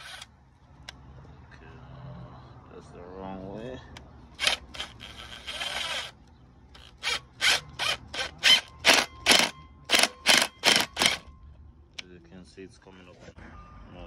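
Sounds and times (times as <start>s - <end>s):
cordless impact wrench bursts: 4.4s - 6.2s, 6.8s - 11.3s.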